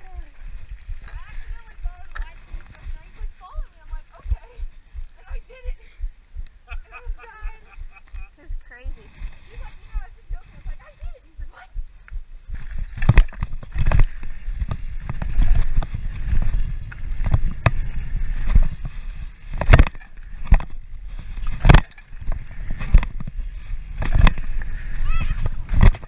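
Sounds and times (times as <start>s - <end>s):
bike knocking and rattling: 0.0s - 4.6s, 12.5s - 26.0s
bike tyres crunching on dirt: 0.0s - 5.3s, 12.4s - 26.0s
wind rumble on microphone: 9.0s - 26.0s.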